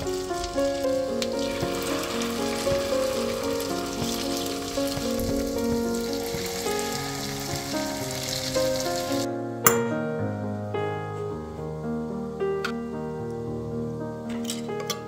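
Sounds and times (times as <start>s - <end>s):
patties sizzling in hot oil: 0.0s - 9.3s
background music: 0.0s - 15.0s.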